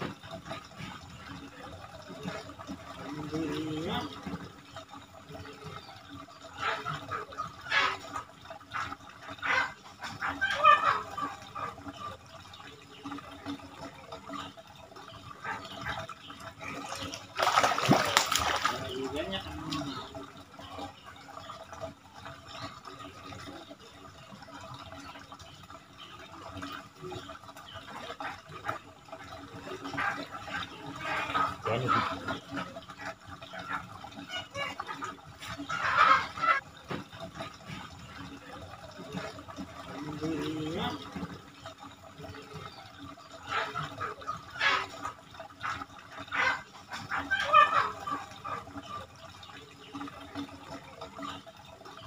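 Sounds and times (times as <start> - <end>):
fish splashing in water: 13.0 - 25.5, 29.8 - 52.0.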